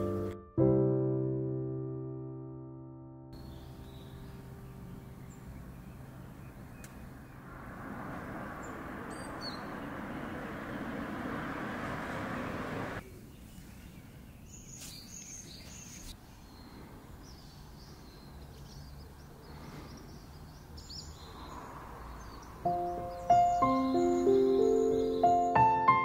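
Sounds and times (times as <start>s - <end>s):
bird chirps: 3.4s - 7.5s, 8.5s - 11.0s, 13.0s - 26.0s
steady rushing noise: 7.4s - 13.0s.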